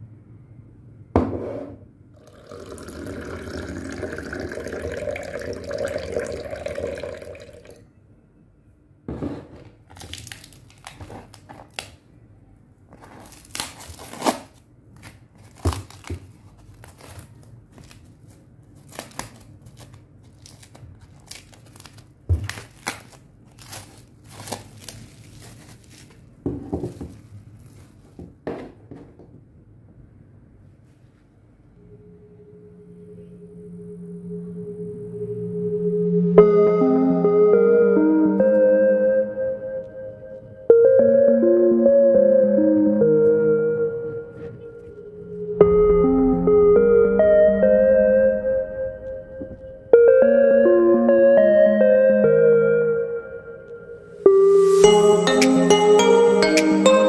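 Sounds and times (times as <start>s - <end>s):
plastic wrap crackling: 9.8s - 12.0s, 13.0s - 26.4s
plastic shrink-wrap crinkling: 9.9s - 12.0s, 13.0s - 26.4s.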